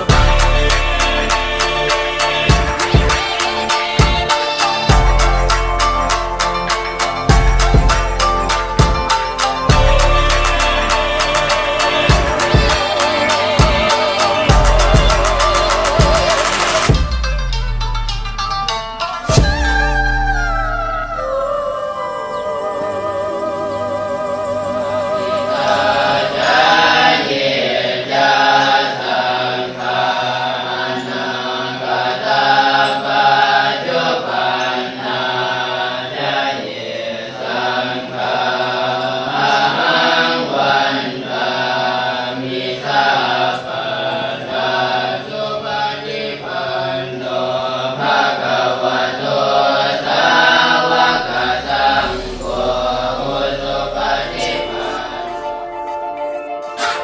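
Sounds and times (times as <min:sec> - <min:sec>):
voices chanting together: 0:00.0 - 0:17.2, 0:19.3 - 0:57.0.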